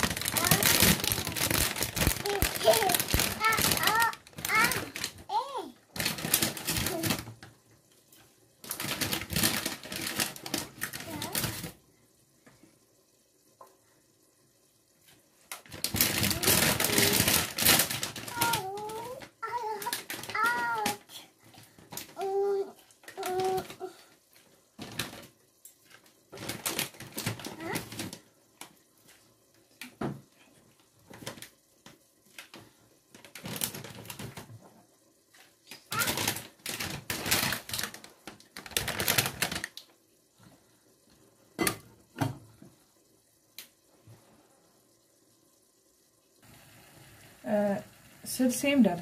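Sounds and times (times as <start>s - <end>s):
sauce sizzling: 39.8s - 49.0s.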